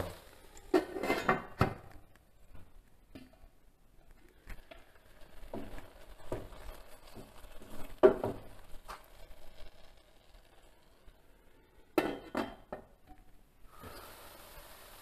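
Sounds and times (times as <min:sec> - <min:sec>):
spoon scraping a pan: 0:00.6 - 0:01.6.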